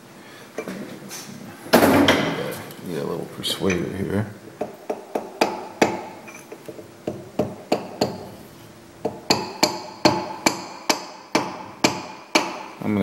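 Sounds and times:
small hammer tapping metal: 4.6 - 8.3, 9.0 - 12.8.

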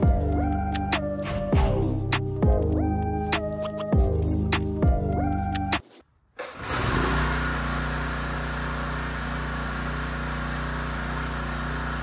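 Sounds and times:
pressure washer engine running: 6.6 - 12.0.

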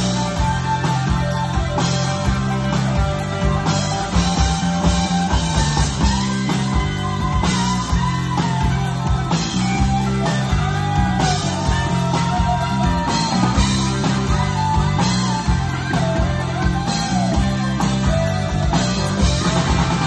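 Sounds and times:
electric guitar solo: 0.0 - 20.0
rock band playing: 0.0 - 20.0.

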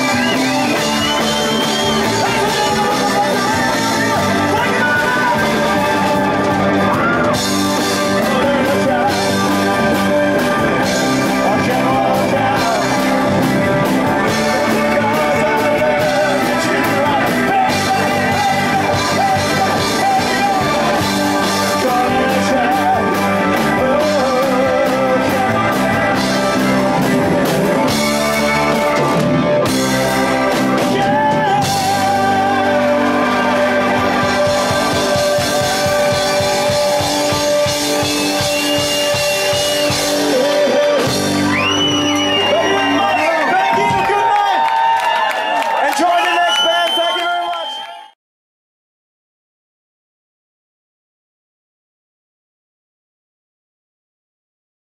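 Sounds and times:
man singing: 0.0 - 28.7, 30.4 - 41.5
blues rock band playing: 0.0 - 44.8.

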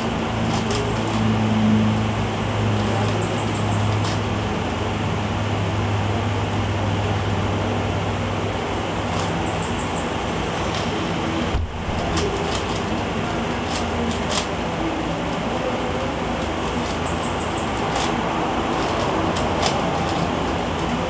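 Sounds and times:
steady low hum: 0.0 - 21.0
puzzle cube clattering: 9.1 - 14.6.

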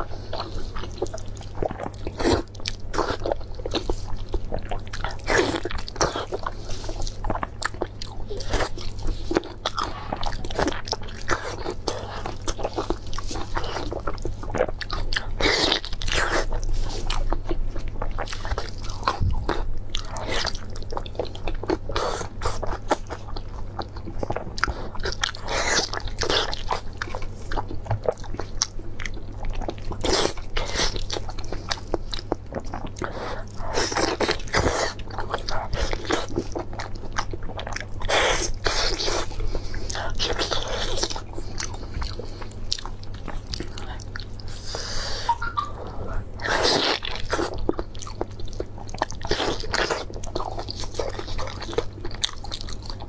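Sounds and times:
biting and chewing meat: 0.0 - 53.0.

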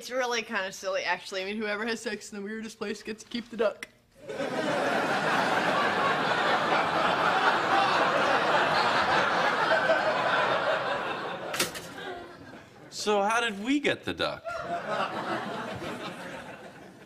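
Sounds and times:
audience laughing: 4.2 - 12.9, 14.4 - 17.0.

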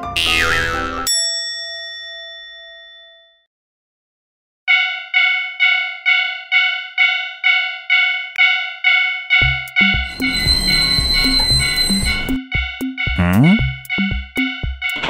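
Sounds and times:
railway crossing warning bell: 1.1 - 3.4, 4.7 - 12.4.

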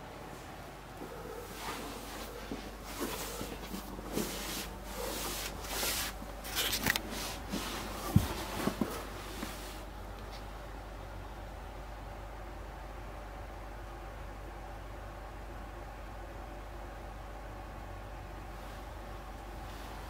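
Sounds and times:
camera handling noise: 6.5 - 7.0.

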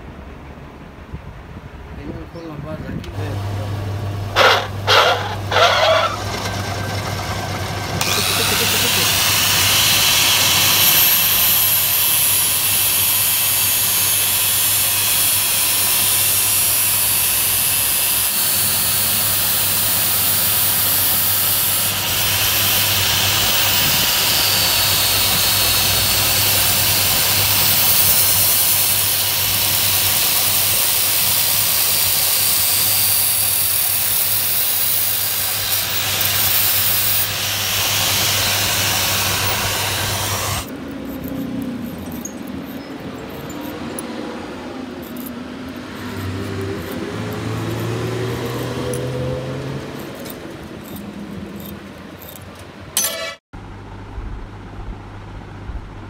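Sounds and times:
lathe motor hum: 3.2 - 44.0
angle grinder grinding metal: 4.3 - 53.4.

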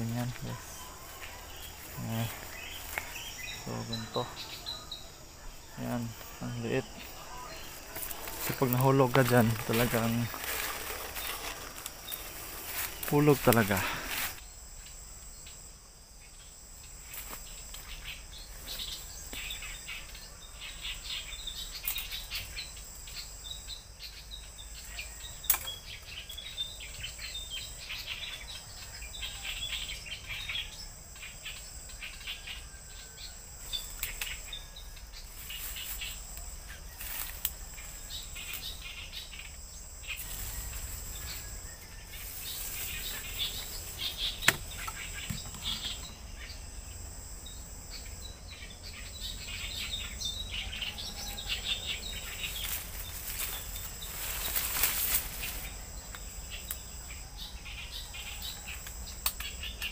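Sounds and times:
insects droning: 0.0 - 59.9
small birds chirping: 0.0 - 59.9.

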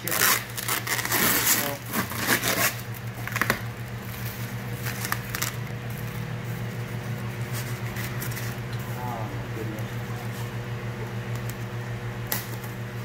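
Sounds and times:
packing tape crackling and rustling: 0.0 - 8.6
steady low hum: 0.0 - 13.0.

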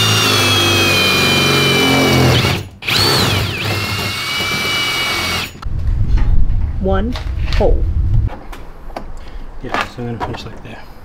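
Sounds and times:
cordless drill drilling metal: 0.0 - 5.6.

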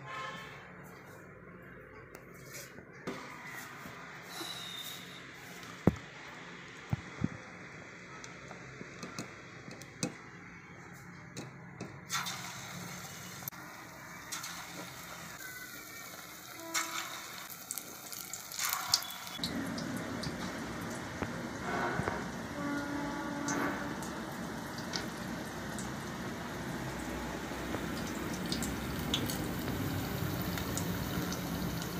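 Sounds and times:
batter sizzling in hot oil: 12.2 - 21.5, 24.4 - 31.9.

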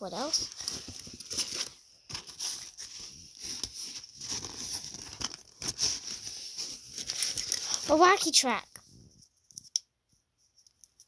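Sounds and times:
rustling and crinkling in a pouch: 0.0 - 8.2.

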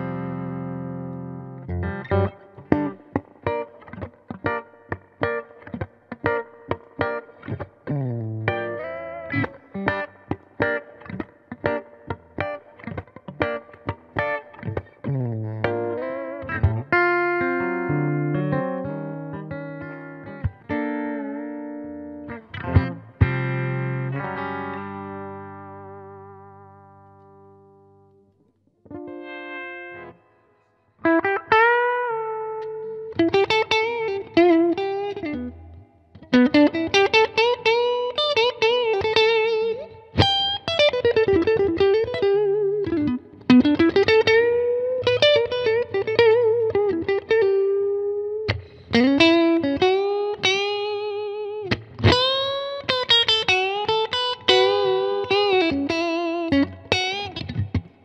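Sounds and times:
electric guitar lead with string bends: 0.0 - 58.0.

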